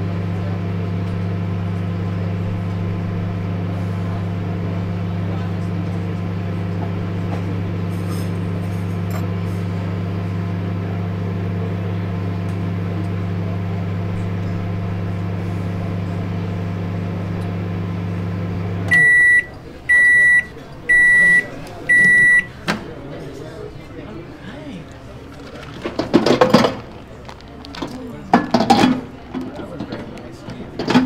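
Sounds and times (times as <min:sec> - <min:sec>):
microwave oven humming: 0:00.0 - 0:31.0
microwave high beeps: 0:18.9 - 0:22.5.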